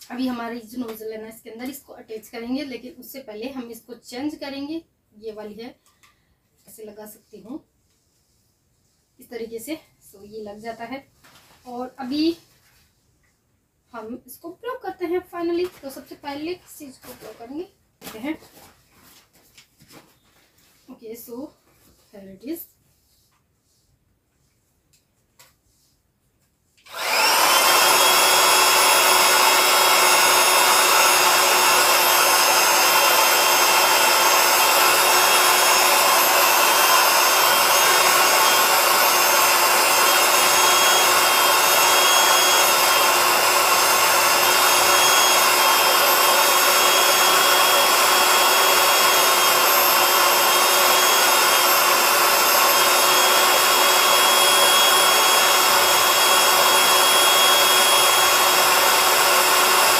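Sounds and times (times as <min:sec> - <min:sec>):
electric air pump motor whine: 0:26.8 - 0:59.9.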